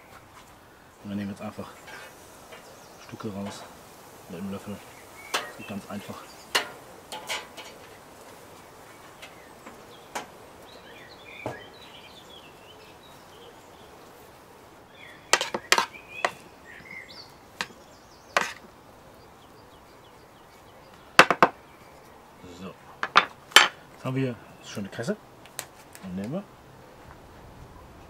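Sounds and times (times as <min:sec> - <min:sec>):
faint birds chirping: 0:00.0 - 0:28.0.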